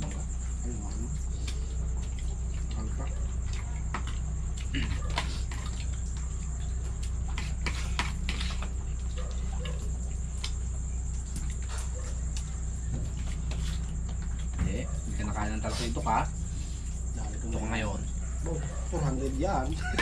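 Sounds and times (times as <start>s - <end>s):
cricket trill: 0.0s - 20.0s
steady low hum: 0.0s - 20.0s.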